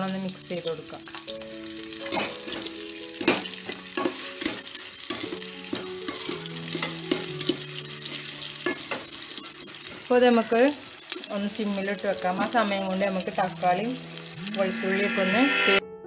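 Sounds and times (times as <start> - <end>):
onions sizzling in hot oil: 0.0 - 15.8
steel spoon scraping a pot: 8.0 - 11.2.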